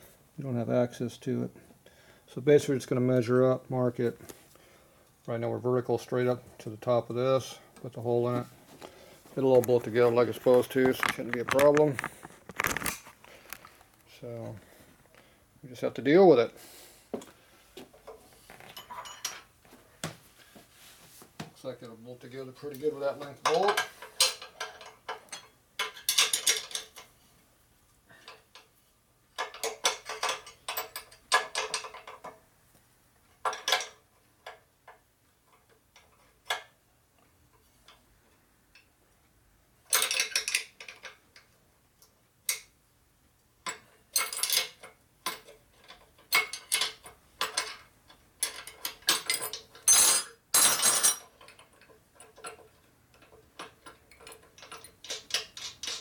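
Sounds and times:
metal tools clinking and rattling: 9.5s - 13.0s, 18.0s - 19.5s, 22.6s - 27.1s, 29.4s - 32.4s, 33.4s - 34.1s, 39.9s - 41.2s, 43.6s - 56.0s.

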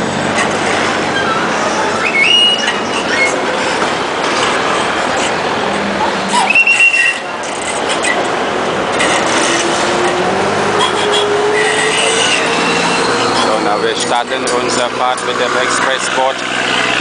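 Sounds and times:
boat engine rushing: 0.0s - 17.0s
wind: 0.0s - 17.0s
short high squeals: 1.1s - 3.6s, 6.3s - 8.2s, 10.8s - 13.8s.

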